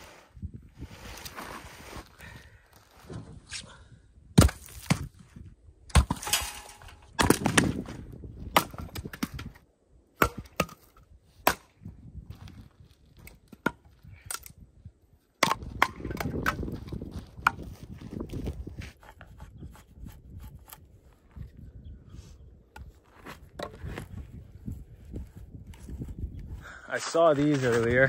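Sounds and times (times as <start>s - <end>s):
hatchet chopping wood: 4.4s - 5.1s, 5.9s - 6.4s, 7.2s - 7.8s, 8.5s - 9.3s, 10.2s - 11.7s, 15.4s - 16.8s.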